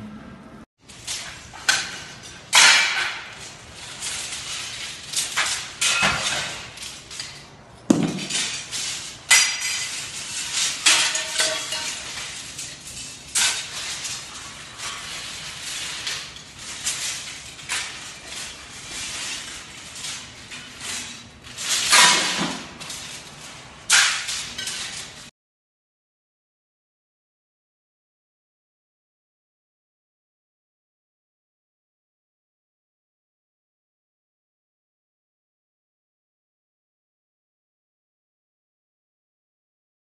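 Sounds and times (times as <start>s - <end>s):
scrap metal clattering: 0.8s - 25.3s.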